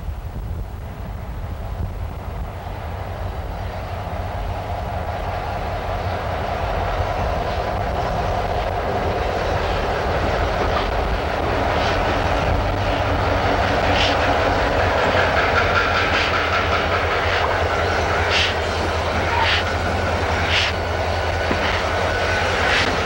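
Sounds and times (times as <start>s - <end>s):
train wheels clicking over rail joints: 4.6s - 23.0s.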